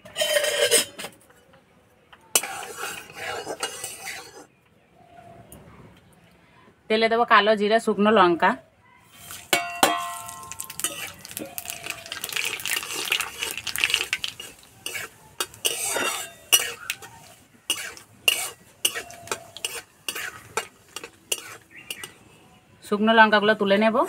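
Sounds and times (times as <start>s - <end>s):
metal spatula scraping a pan: 0.0s - 1.2s, 2.3s - 4.5s, 9.1s - 22.2s
seeds sizzling in hot oil: 9.2s - 22.2s
steel plate clanging on pan: 9.5s - 11.8s, 14.3s - 17.1s, 17.7s - 22.2s.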